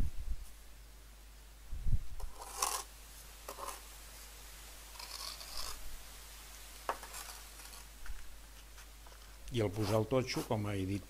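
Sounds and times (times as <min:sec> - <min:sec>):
trowel scraping mortar: 0:02.2 - 0:02.9, 0:03.5 - 0:03.8, 0:04.9 - 0:05.8, 0:06.9 - 0:07.9.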